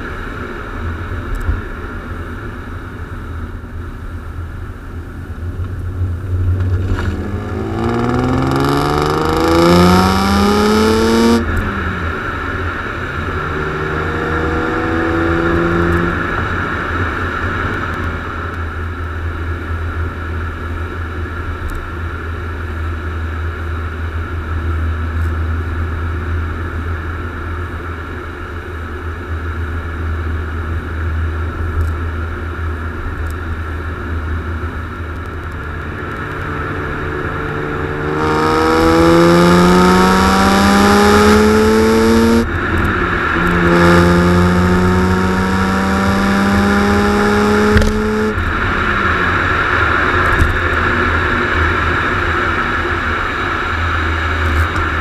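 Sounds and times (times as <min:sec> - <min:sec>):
constant low rumble: 0:00.0 - 0:55.0
car engine revving: 0:05.4 - 0:18.5, 0:32.8 - 0:55.0.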